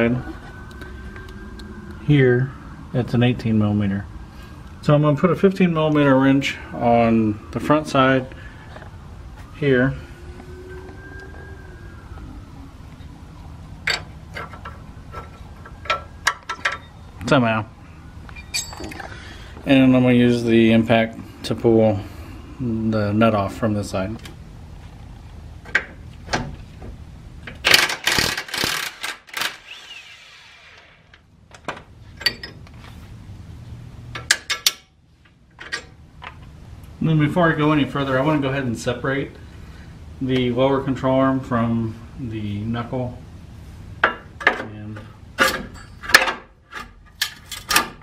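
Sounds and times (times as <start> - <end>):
faint falling tone: 0.0 - 24.1
metal wrench clinking on bolt: 18.4 - 19.0, 32.2 - 32.6, 34.2 - 34.9.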